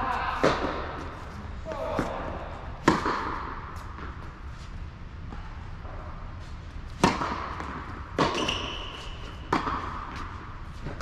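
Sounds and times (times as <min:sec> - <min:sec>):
tennis ball hits echoing: 0:00.4 - 0:01.0, 0:01.7 - 0:04.2, 0:07.0 - 0:10.3
tennis ball bouncing: 0:00.4 - 0:04.5, 0:06.9 - 0:11.0.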